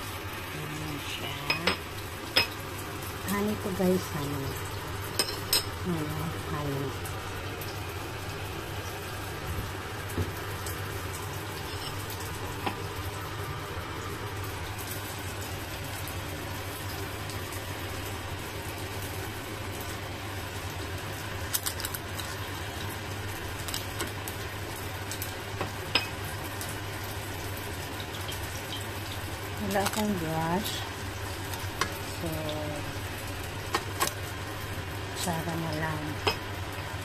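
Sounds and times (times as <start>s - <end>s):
chicken wings sizzling: 0.0s - 37.0s.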